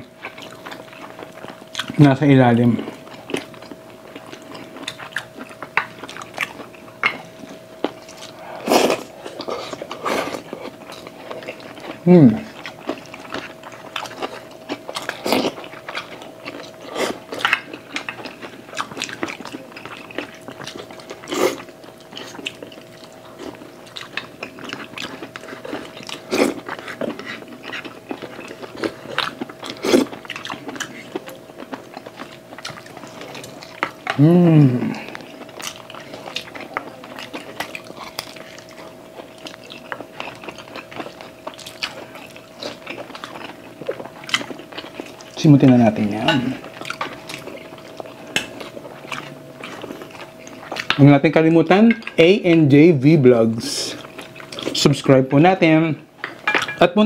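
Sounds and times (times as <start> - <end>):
wet chewing and lip smacking: 0.2 - 2.0, 2.9 - 34.2, 35.0 - 45.4, 46.6 - 51.0.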